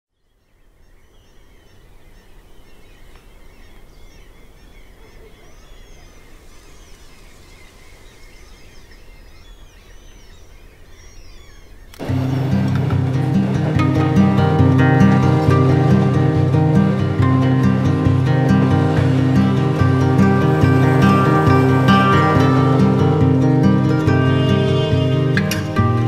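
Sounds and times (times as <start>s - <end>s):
birds chirping: 0.1s - 26.0s
steady low rumble: 12.0s - 26.0s.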